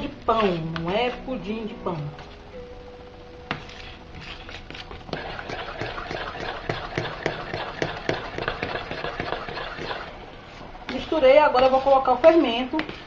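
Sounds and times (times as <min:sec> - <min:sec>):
spoon stirring batter in a bowl: 0:00.0 - 0:01.2, 0:03.5 - 0:10.1, 0:10.9 - 0:13.0.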